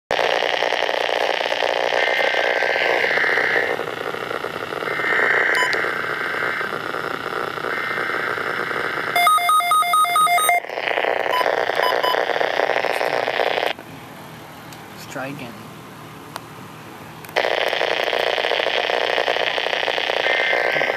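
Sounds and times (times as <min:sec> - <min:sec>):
radio static hiss: 0:00.1 - 0:09.2, 0:09.9 - 0:13.8, 0:17.4 - 0:20.9
electronic beeps: 0:05.5 - 0:05.8, 0:09.1 - 0:12.3.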